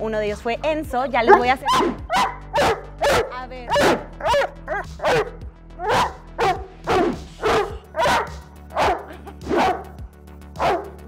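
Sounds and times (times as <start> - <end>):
background music: 0.0 - 11.0
dog barking: 1.3 - 10.0, 10.6 - 11.0.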